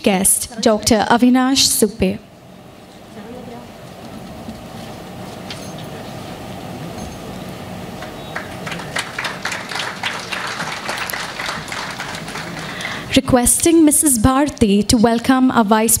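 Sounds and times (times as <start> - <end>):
low hum in hall: 0.0 - 16.0
audience applause: 7.9 - 13.2.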